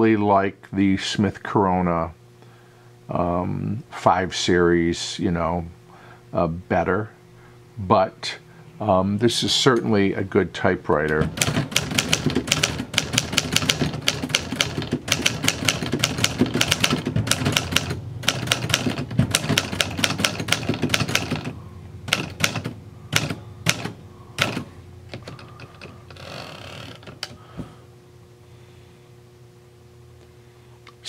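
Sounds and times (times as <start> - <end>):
typewriter keystrokes: 11.1 - 21.5, 22.1 - 25.9
typewriter carriage return: 11.2 - 21.5, 22.1 - 26.3.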